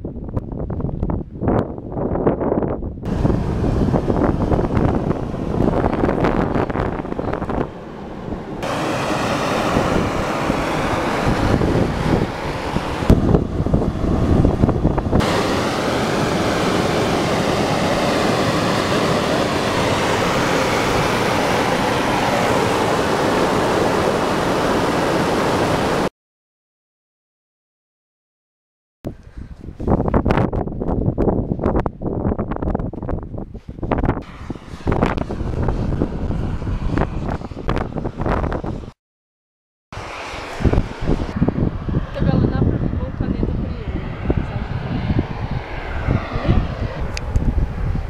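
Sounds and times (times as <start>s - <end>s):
wind buffeting microphone: 0.0s - 26.1s, 29.1s - 39.0s, 40.0s - 48.0s
steam hissing from fumarole: 3.1s - 26.1s.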